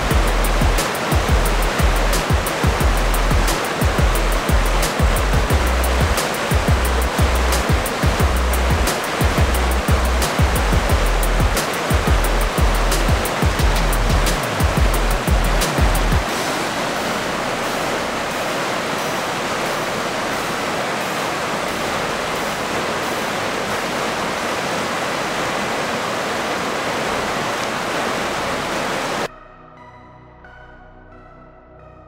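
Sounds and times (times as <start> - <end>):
drum beat: 0.0 - 16.3
soft keyboard music: 0.0 - 16.4, 29.3 - 32.0
water rushing over rocks: 0.0 - 29.3.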